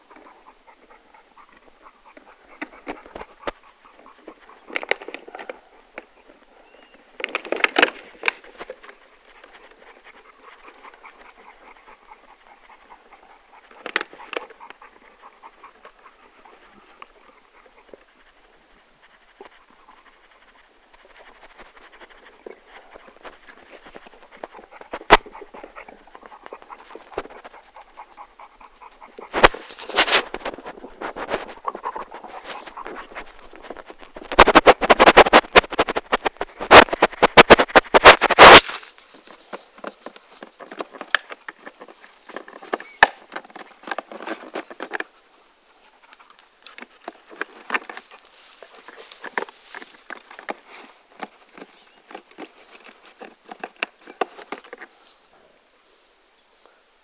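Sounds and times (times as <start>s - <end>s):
dog panting: 0.0s - 55.5s.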